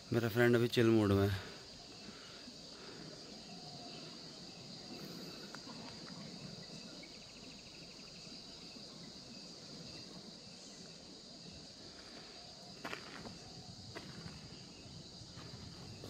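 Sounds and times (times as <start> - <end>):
insect chorus chirring: 0.0 - 16.0
rapid insect trill: 0.0 - 16.0.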